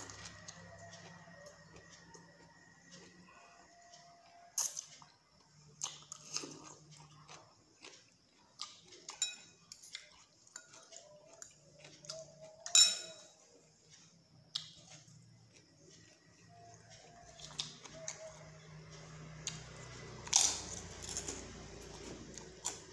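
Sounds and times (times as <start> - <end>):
chewing: 0.0 - 22.9
cutlery clinking against glass bowl: 9.1 - 11.0, 12.6 - 13.4.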